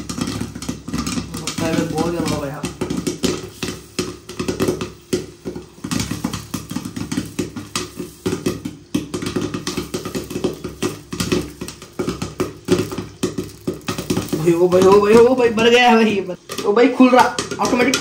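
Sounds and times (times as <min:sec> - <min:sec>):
popcorn popping in a covered pan: 0:00.0 - 0:18.0.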